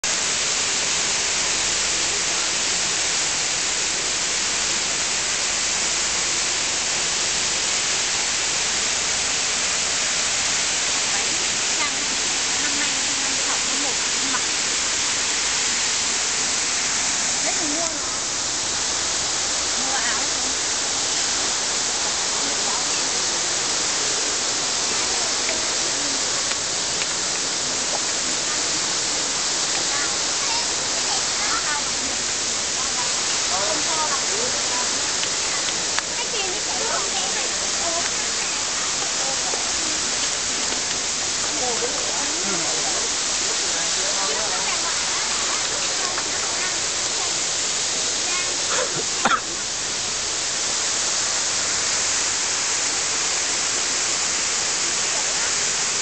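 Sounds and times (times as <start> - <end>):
steady hiss: 0.0 - 56.0
faint voices: 10.7 - 53.0.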